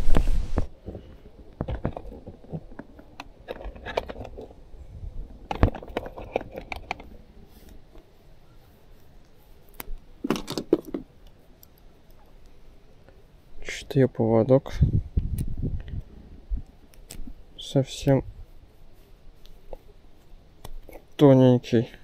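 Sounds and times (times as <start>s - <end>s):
small hard objects clicking and rattling: 1.5s - 4.6s, 5.4s - 7.1s, 9.7s - 12.2s.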